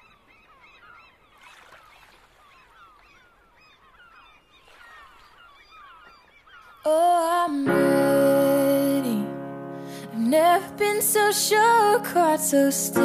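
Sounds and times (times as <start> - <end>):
flock of birds calling: 0.0 - 7.2.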